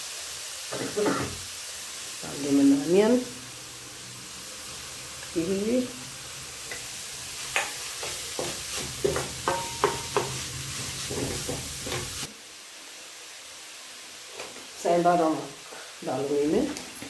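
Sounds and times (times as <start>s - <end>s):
steady sizzle: 0.0s - 17.0s
spatula scraping vegetables in pan: 6.6s - 12.3s.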